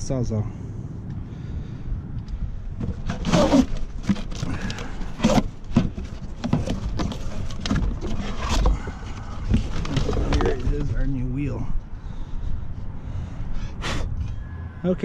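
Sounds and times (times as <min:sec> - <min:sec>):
cardboard box flaps scraping: 0:02.8 - 0:10.8.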